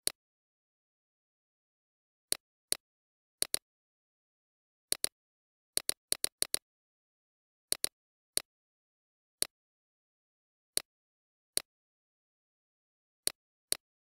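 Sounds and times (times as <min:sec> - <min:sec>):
computer mouse clicks: 0:03.4 - 0:03.6, 0:04.9 - 0:05.1, 0:05.8 - 0:06.6, 0:07.7 - 0:07.9.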